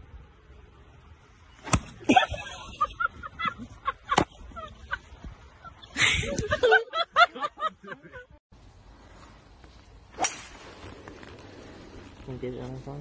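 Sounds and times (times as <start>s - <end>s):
people laughing: 2.1s - 8.4s.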